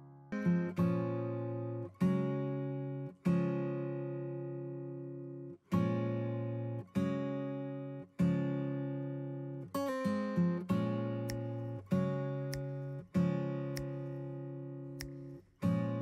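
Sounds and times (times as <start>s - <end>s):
acoustic guitar strumming chords: 0.0s - 16.0s.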